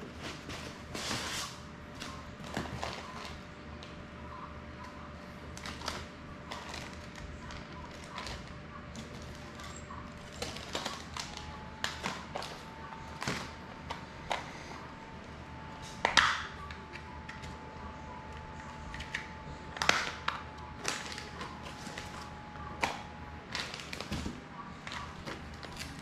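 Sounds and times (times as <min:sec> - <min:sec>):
packaging taps clicks and crinkles: 0:04.8 - 0:14.5, 0:15.9 - 0:17.6, 0:18.2 - 0:26.0.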